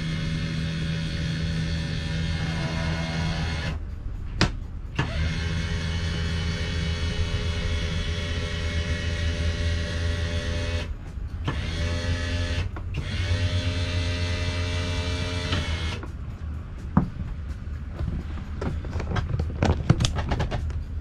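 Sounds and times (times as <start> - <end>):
electric motor droning hum: 0.0 - 4.0, 5.0 - 17.3.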